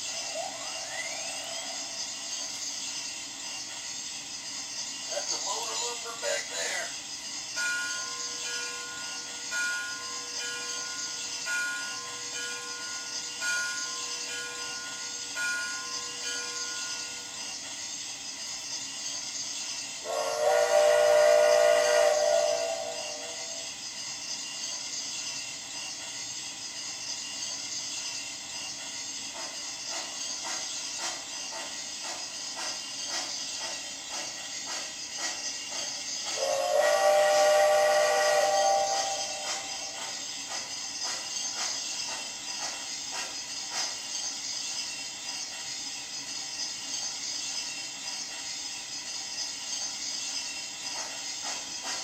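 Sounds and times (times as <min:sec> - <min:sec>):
steam hiss: 0:00.0 - 0:52.0.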